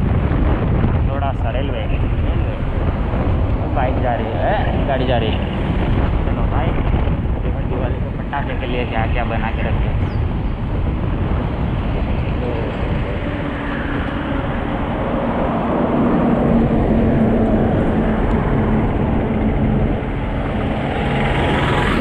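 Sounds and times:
wind rushing over microphone: 0.0 - 22.0
heavy truck engine drone: 9.8 - 22.0.

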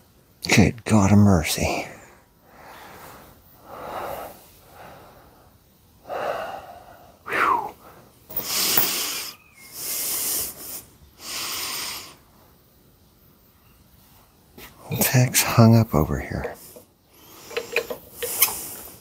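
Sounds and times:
man breathing hard: 2.2 - 12.2.

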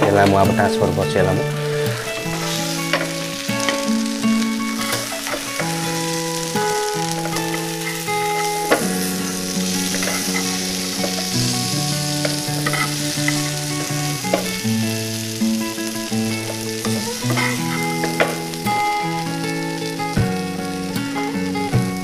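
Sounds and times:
slow background music: 0.0 - 22.0
oil sizzling in a frying pan: 1.0 - 22.0.

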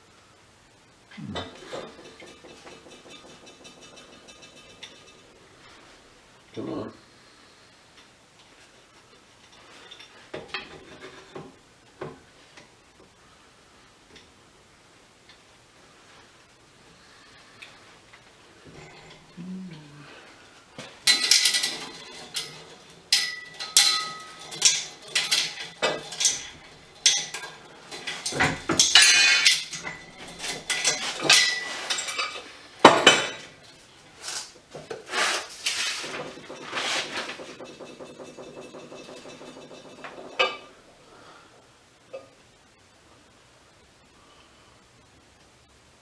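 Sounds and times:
metal rattling: 1.2 - 5.4, 21.0 - 32.4
steel parts clanking: 18.7 - 19.4, 21.0 - 34.4.

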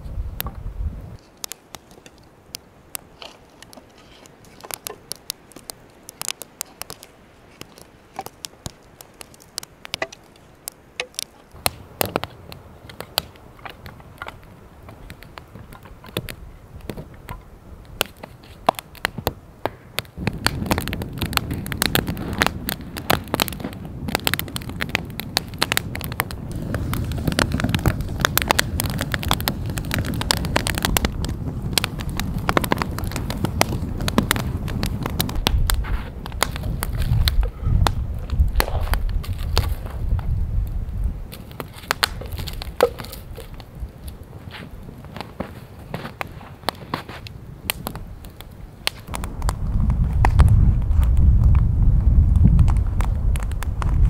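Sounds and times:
campfire crackling and popping: 0.0 - 54.0
low rushing of flames: 0.0 - 54.0
sticks knocking: 41.5 - 43.6.

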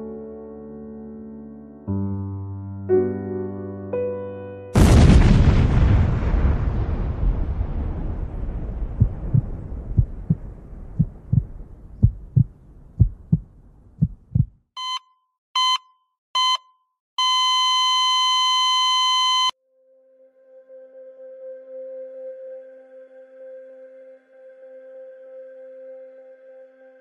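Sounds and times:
explosion rumble: 4.8 - 14.5
heartbeat thumping: 8.9 - 10.4, 11.0 - 14.6
heart monitor beeps: 14.4 - 19.6.

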